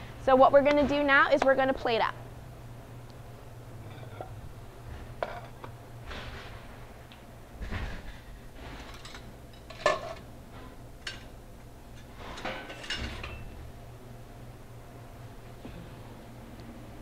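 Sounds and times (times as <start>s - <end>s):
metal pans clinking: 8.9s - 10.2s, 12.4s - 13.5s.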